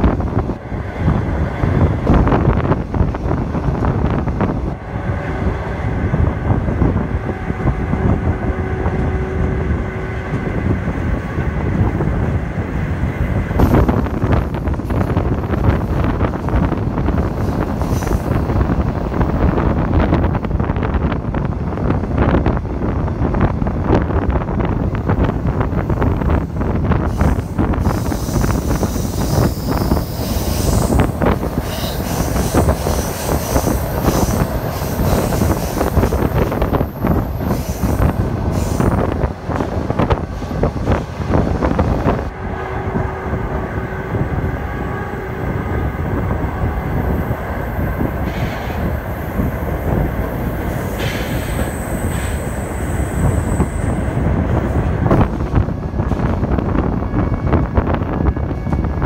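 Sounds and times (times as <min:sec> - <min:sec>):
train wheels clattering on track: 0:05.5 - 0:20.3, 0:24.6 - 0:42.3, 0:47.7 - 0:59.0
train wheels squealing: 0:27.0 - 0:36.6.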